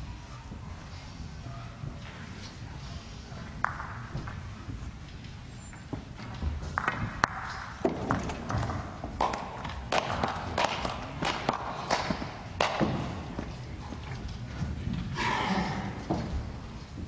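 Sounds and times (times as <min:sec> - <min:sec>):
low hall hum: 0:00.0 - 0:17.0.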